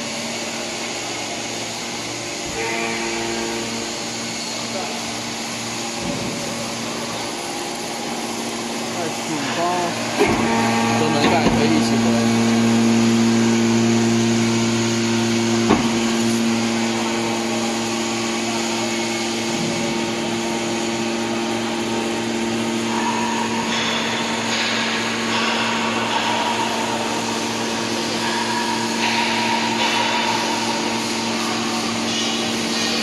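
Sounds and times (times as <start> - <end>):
high-pitched whine: 0.0 - 33.0
hydraulic unit humming: 0.0 - 33.0.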